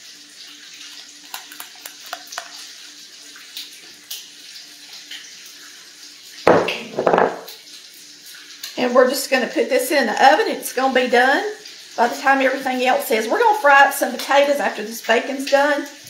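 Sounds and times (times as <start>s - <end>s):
bacon sizzling in a skillet: 0.0s - 16.0s
low thump of pan: 6.5s - 7.5s.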